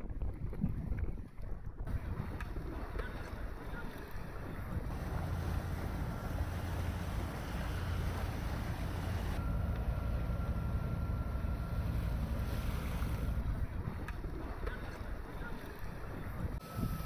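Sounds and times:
wind noise on microphone: 0.0 - 5.5, 16.0 - 17.0
boat engine humming: 1.9 - 17.0.

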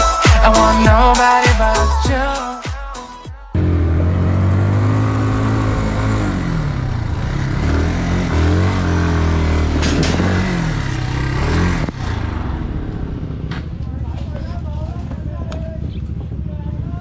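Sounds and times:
motorcycle engine revving: 3.6 - 17.0.

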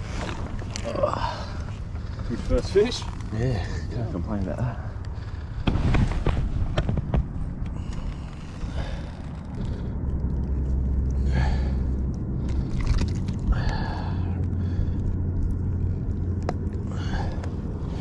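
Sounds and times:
low engine-like rumble: 0.0 - 18.0.

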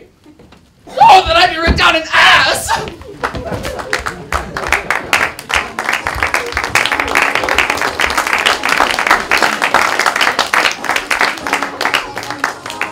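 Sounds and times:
audience applauding: 2.9 - 12.9.

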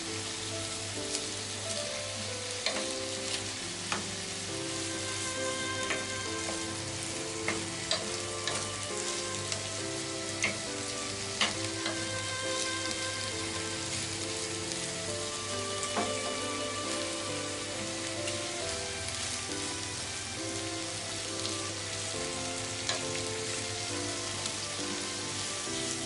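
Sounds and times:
vegetables sizzling in a frying pan: 0.0 - 26.0
wooden spatula knocking on pan: 5.8 - 6.8, 7.4 - 9.2, 15.8 - 16.4.

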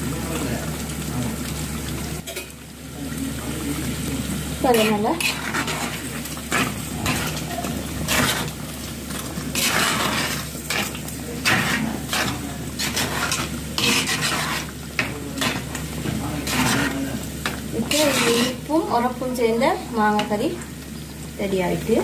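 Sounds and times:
curry simmering in a pot: 0.0 - 22.0
kitchen clatter: 2.2 - 2.6, 4.6 - 18.8.

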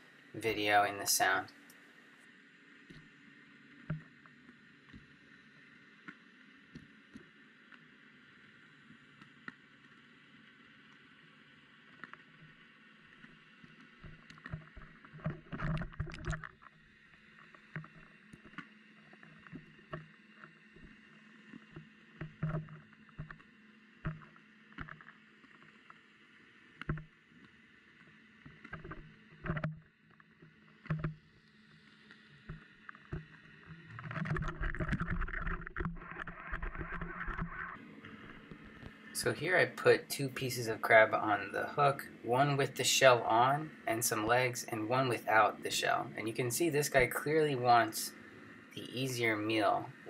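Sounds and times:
underwater clicks and knocks: 14.0 - 16.7, 21.7 - 25.1, 26.8 - 27.1, 28.5 - 29.9, 30.8 - 31.2, 32.4 - 39.0.

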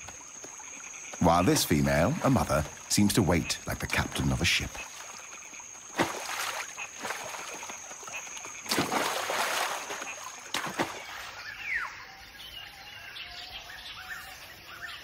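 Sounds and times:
water splashing: 0.0 - 11.5
forest ambience: 0.0 - 15.0.

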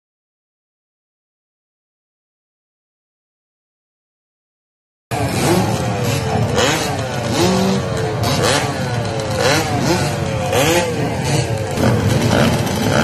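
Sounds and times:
dirt bikes revving: 5.1 - 13.0.

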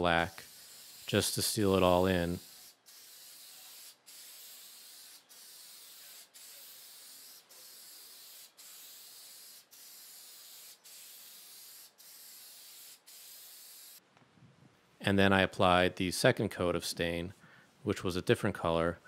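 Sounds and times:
aerosol spray hissing: 0.0 - 14.0.

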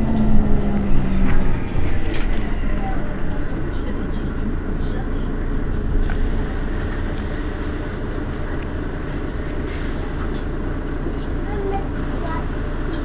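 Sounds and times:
bus engine idling: 0.0 - 13.0.

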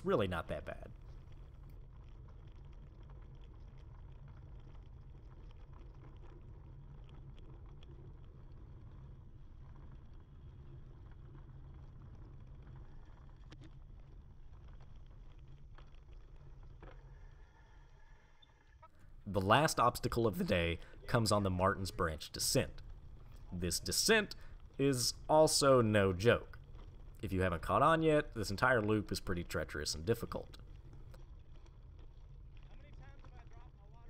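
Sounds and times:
mountain bike rolling on gravel: 19.2 - 34.0.

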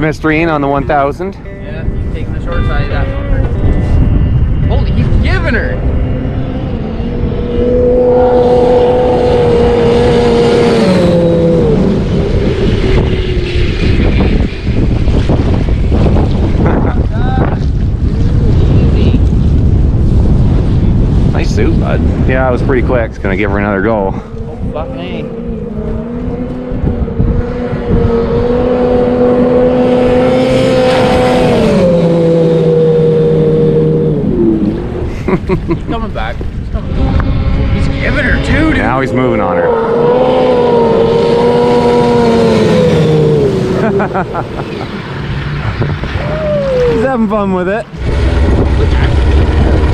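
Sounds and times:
snowmobile engine at high throttle: 0.0 - 49.9.

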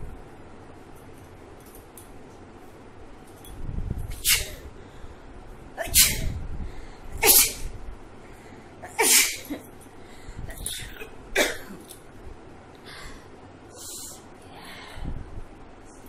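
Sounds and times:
woman sneezing: 5.8 - 6.3, 8.9 - 9.7.

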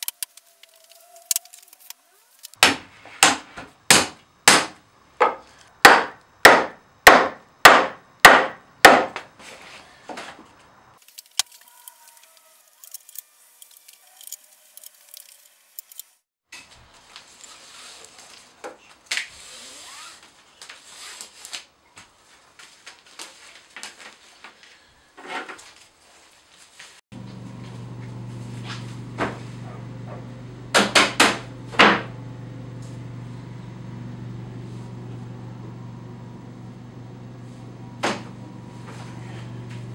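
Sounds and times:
steady low hum: 27.2 - 39.9.

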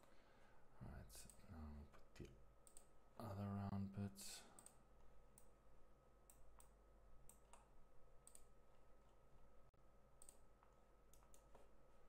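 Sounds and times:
faint electrical hum: 0.0 - 12.0
faint computer mouse clicks: 4.6 - 4.8.

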